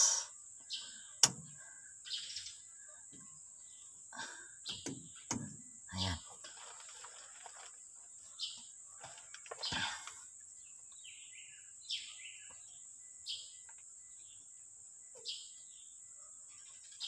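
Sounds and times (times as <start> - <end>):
high-pitched hiss: 0.0 - 2.7
bird chirping: 0.0 - 17.0.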